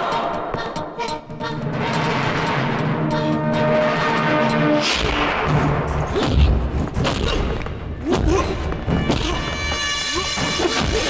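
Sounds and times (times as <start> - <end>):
dramatic action music: 1.6 - 11.0
punch and kick thuds: 5.0 - 9.6
grunts and shouts: 6.1 - 11.0.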